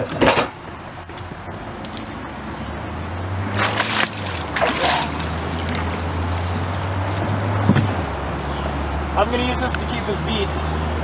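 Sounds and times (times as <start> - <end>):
water splashing: 3.2 - 6.7.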